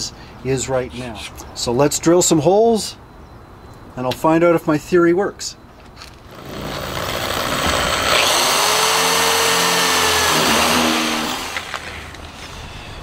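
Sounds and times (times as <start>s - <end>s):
electric drill boring: 6.3s - 11.8s.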